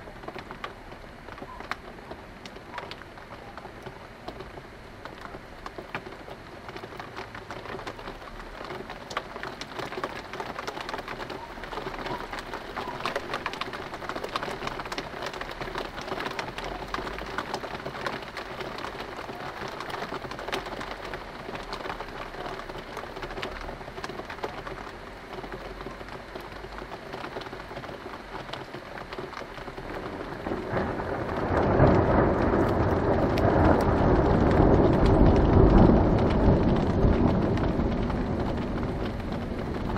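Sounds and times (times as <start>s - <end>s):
rain pattering: 0.0s - 39.9s
distant thunder rumbling: 29.7s - 39.9s.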